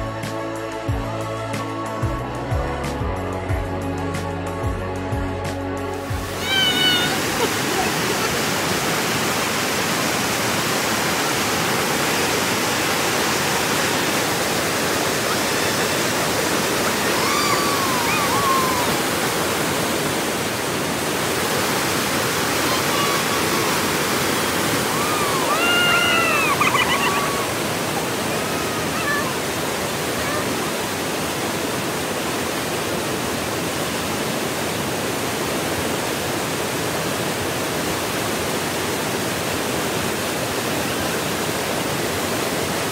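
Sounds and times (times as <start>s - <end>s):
river rapids roaring: 6.0s - 42.9s
faint rising and falling calls: 6.3s - 8.3s, 15.2s - 19.5s, 22.3s - 29.5s.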